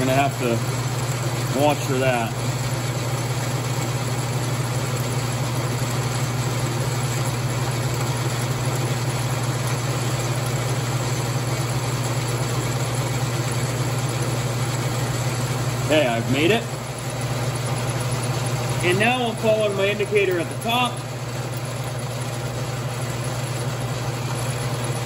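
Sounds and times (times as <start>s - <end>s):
lathe humming: 0.0s - 25.0s.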